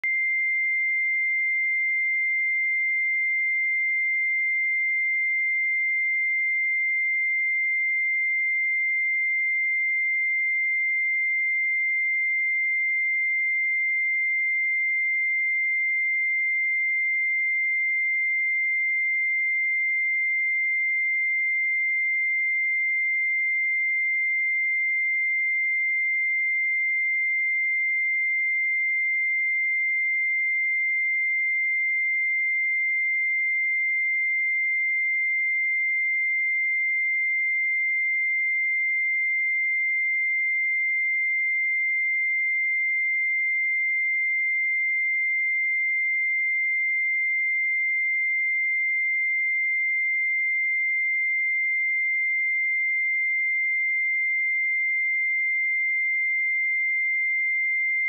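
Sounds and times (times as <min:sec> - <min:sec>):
high-pitched sine-wave test tone: 0:00.0 - 0:58.0.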